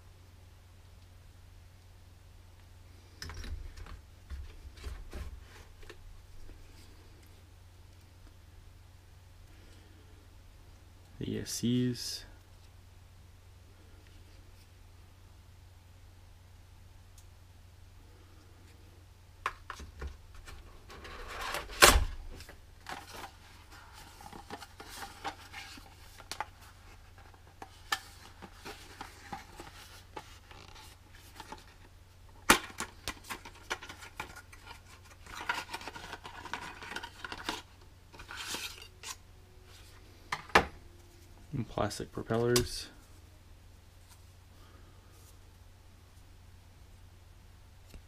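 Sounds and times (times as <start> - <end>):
packaging rustling: 20.3 - 39.2.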